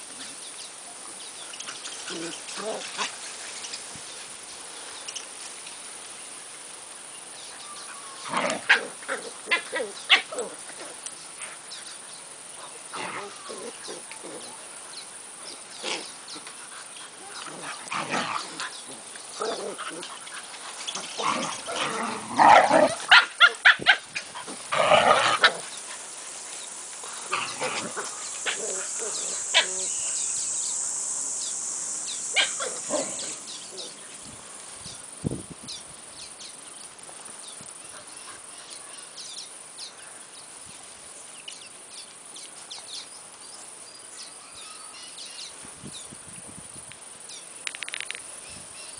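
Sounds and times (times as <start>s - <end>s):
dogs barking in play: 1.6s - 3.6s, 7.9s - 11.7s, 15.8s - 34.6s.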